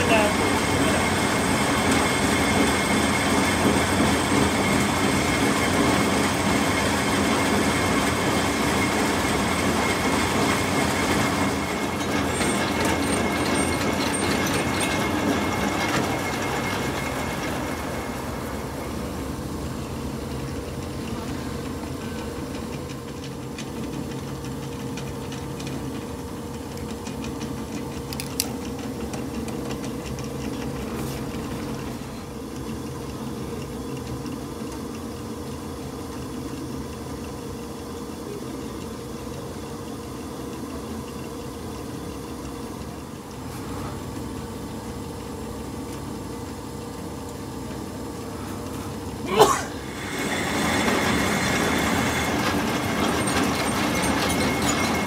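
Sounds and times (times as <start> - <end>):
metal lathe clattering: 8.6 - 19.4, 50.0 - 55.0.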